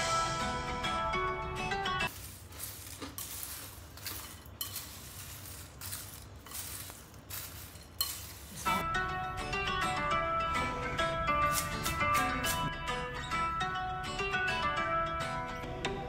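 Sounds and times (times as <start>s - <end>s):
dry crunchy snack rustling: 2.1s - 8.8s
spoon clinking on glass: 3.2s - 8.6s.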